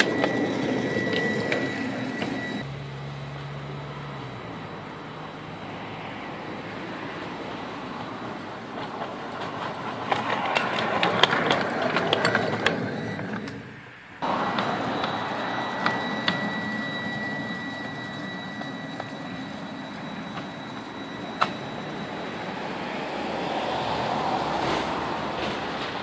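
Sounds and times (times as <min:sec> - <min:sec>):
locomotive high whine: 0:00.0 - 0:25.4
miniature locomotive wheels clicking: 0:07.4 - 0:13.6.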